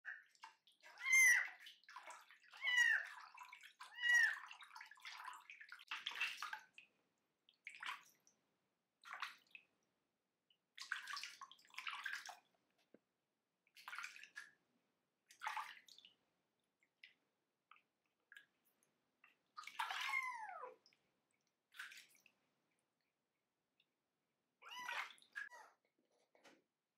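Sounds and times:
water splashing in sink: 0.2 - 6.9, 9.0 - 9.6, 10.7 - 12.5, 13.8 - 14.6, 15.3 - 16.2, 19.2 - 21.0, 21.7 - 22.4, 24.6 - 25.6
kitten crying: 1.0 - 1.4, 2.6 - 3.0, 3.9 - 4.4, 19.9 - 20.8, 24.6 - 25.7.

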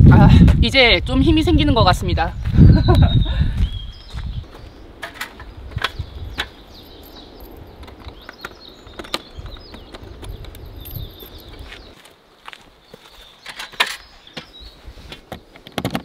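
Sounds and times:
birds chirping: 0.8 - 16.0
metal buckle latches clicking: 5.8 - 11.6.

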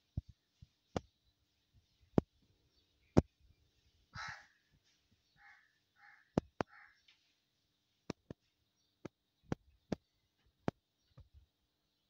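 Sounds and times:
crow cawing: 4.2 - 4.6, 5.4 - 7.1.

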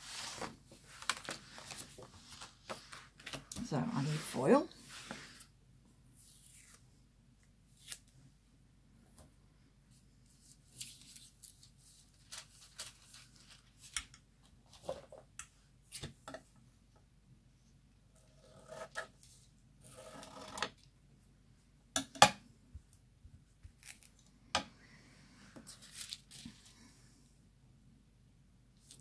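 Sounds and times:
metallic foil crinkling: 10.7 - 13.9.

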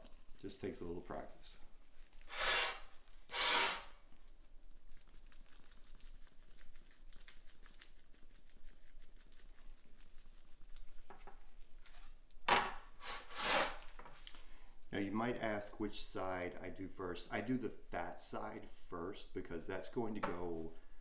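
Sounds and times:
spice granules pattering on meat: 4.1 - 12.4.

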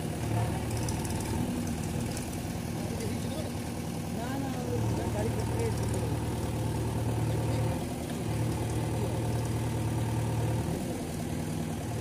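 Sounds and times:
backhoe digging soil: 0.0 - 3.2, 4.8 - 12.0
diesel engine running: 0.0 - 12.0.

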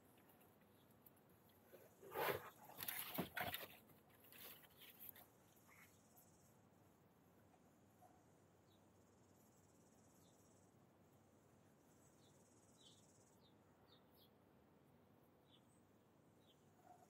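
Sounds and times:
faint bird chirps: 11.9 - 14.4, 15.4 - 17.0.

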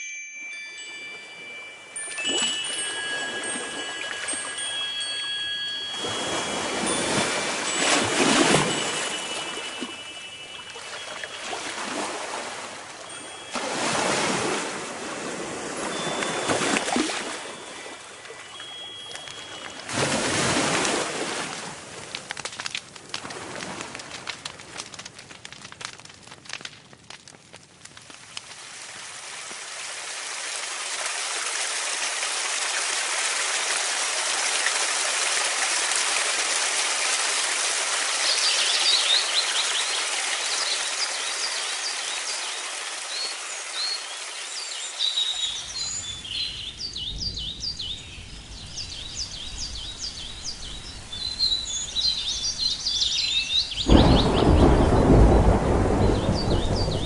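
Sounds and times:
rain falling: 1.6 - 57.0
birds chirping: 8.4 - 11.9, 17.5 - 19.9, 38.2 - 57.0
thunder rumbling: 53.9 - 57.0.

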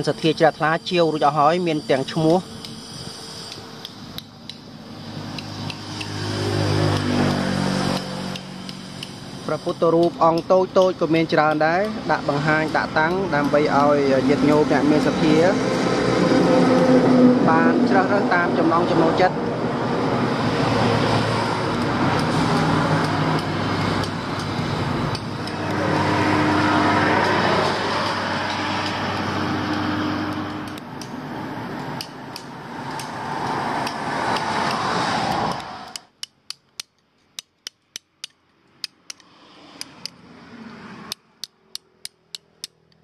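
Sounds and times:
road traffic passing: 0.0 - 43.0
hammer striking chisel into stone: 35.5 - 40.2.

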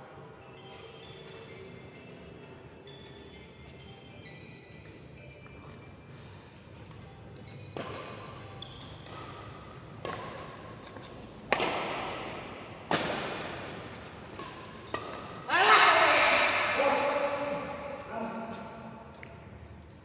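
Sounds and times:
rackets hitting shuttlecock: 7.5 - 18.0.

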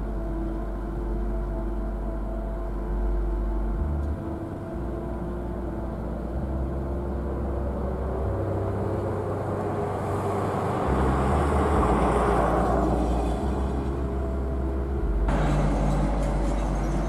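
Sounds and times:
low steady hum: 0.0 - 17.0
vehicle passing: 7.6 - 17.0.

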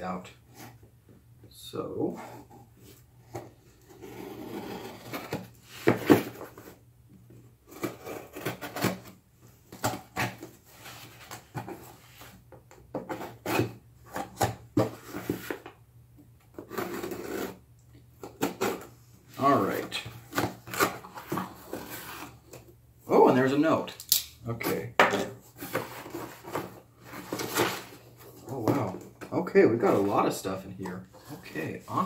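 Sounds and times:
knife scraping cardboard box: 3.9 - 6.5, 7.7 - 9.1, 13.0 - 15.6, 16.6 - 17.6.

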